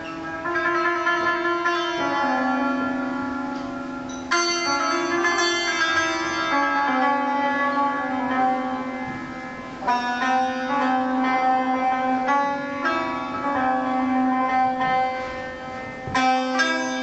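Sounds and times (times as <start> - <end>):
hammered dulcimer notes: 0.0 - 17.0.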